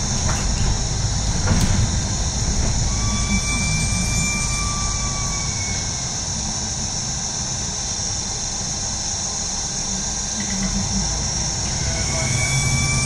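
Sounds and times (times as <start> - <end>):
bus diesel engine running: 0.0 - 13.0
road noise: 0.0 - 13.0
faint whistling tone: 2.9 - 6.4, 11.7 - 13.0.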